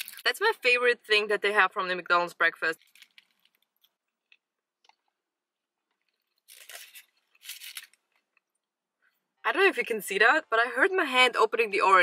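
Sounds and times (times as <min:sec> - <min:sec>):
paper wrapper rustling: 0:00.0 - 0:00.3, 0:02.8 - 0:03.9, 0:06.0 - 0:08.4.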